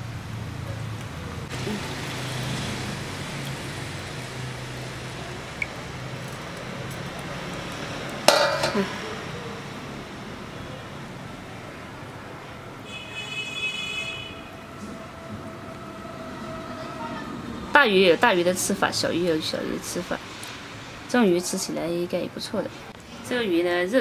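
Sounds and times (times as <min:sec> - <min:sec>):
metallic clank against basin: 0:08.3 - 0:09.0.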